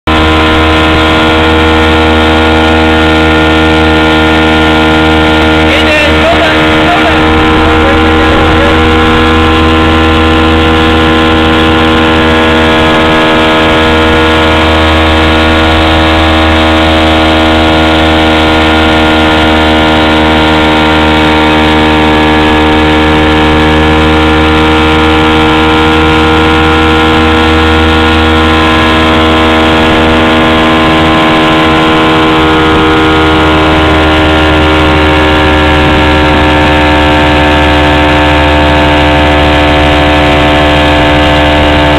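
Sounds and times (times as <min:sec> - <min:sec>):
outboard motor droning: 0:00.0 - 0:41.9.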